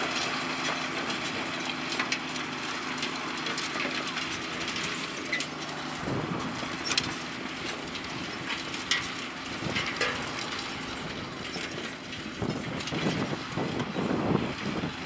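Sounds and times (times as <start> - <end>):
tractors running under load: 0.0 - 15.0
sharp clicks and knocks: 6.5 - 13.3.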